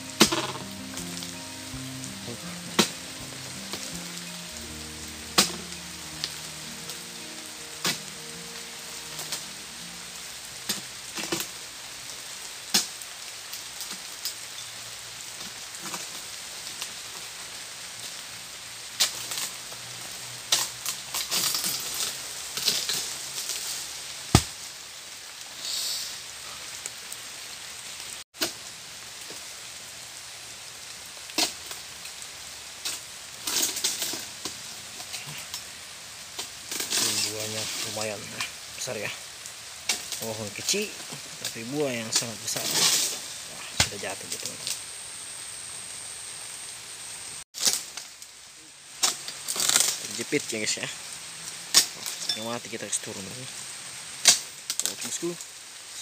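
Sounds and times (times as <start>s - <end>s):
sickle cutting palm fronds: 0.0s - 11.5s, 20.5s - 24.7s, 32.8s - 35.6s, 36.3s - 39.1s, 39.8s - 44.8s, 47.6s - 48.2s, 49.0s - 50.4s
rain hissing: 0.0s - 56.0s.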